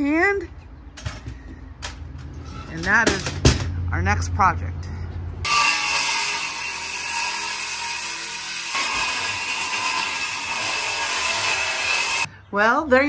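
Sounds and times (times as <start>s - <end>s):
power saw cutting wood: 5.4s - 12.3s.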